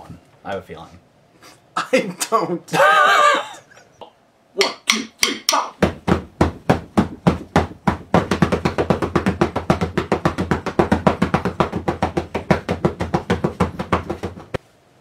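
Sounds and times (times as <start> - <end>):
drumsticks beating drum: 4.6 - 14.6.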